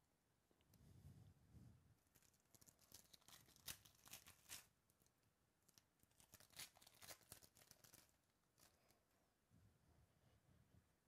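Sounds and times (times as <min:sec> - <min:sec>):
foil wrapper tearing and crinkling: 0:02.1 - 0:04.7, 0:05.7 - 0:08.9.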